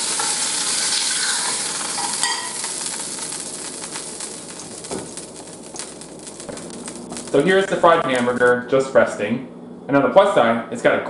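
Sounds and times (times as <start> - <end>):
meat sizzling in a frying pan: 0.0 - 8.5.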